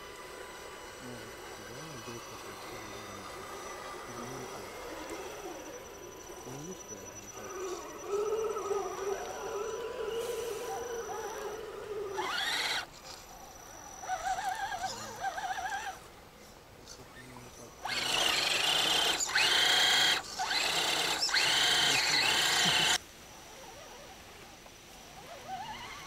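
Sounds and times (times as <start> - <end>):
electric motor whining: 0.0 - 16.1, 17.1 - 23.0
tyres spinning in mud: 17.8 - 23.0.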